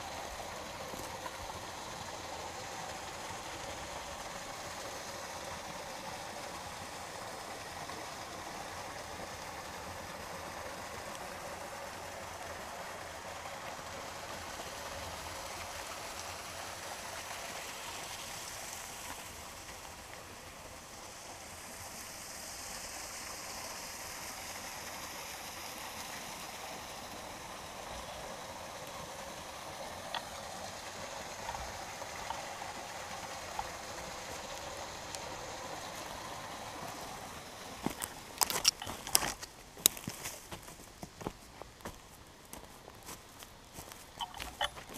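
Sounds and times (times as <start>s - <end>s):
creek running: 0.0s - 44.9s
footsteps crunching on forest floor: 37.8s - 44.9s.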